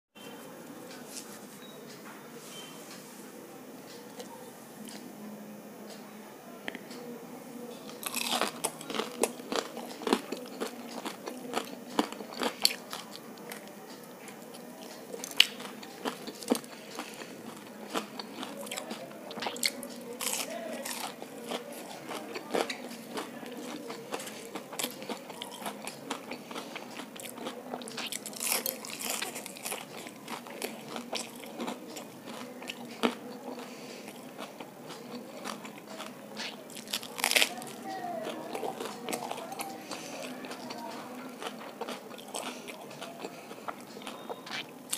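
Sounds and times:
person chewing crispy food: 0:07.9 - 0:13.7, 0:14.3 - 0:44.9
sharp crunches: 0:08.0 - 0:13.0.

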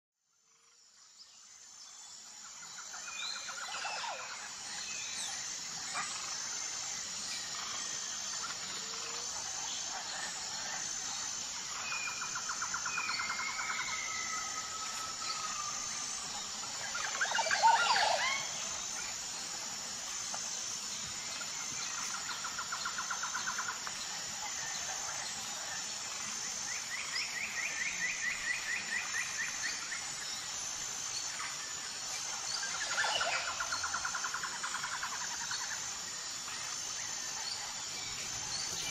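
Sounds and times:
pulsing high insect drone: 0:00.3 - 0:38.9.

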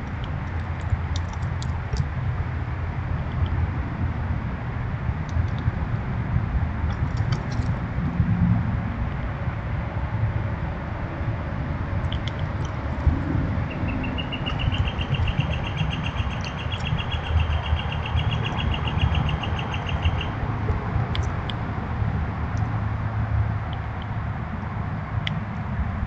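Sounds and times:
steady low rumble: 0:00.0 - 0:26.0
songbird trill: 0:12.1 - 0:20.5
short high bird chirps: 0:13.7 - 0:20.3.

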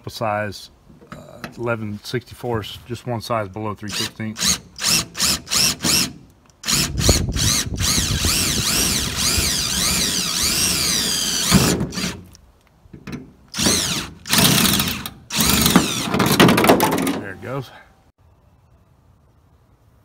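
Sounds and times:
cordless drill whining: 0:03.9 - 0:12.2, 0:13.6 - 0:16.3.

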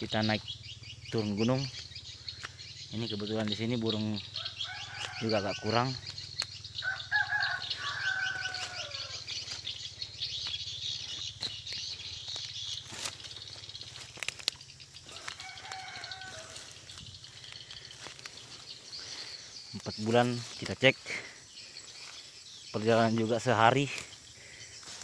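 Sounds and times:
high-pitched chirping: 0:00.0 - 0:21.0
rooster crowing: 0:04.2 - 0:06.2, 0:06.8 - 0:09.4, 0:15.0 - 0:17.0.

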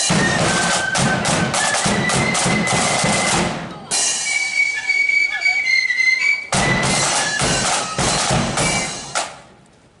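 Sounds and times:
snare and bass drums beating: 0:00.0 - 0:03.7, 0:06.5 - 0:09.5
flutes playing high notes: 0:00.0 - 0:09.1.

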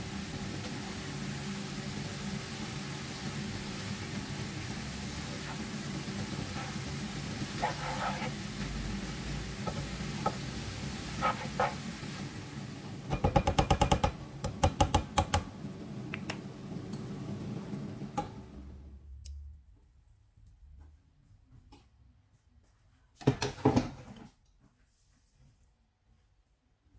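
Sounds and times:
food sizzling in a frying pan: 0:00.0 - 0:13.4
utensil knocking on pan: 0:09.6 - 0:10.5, 0:13.1 - 0:15.5.

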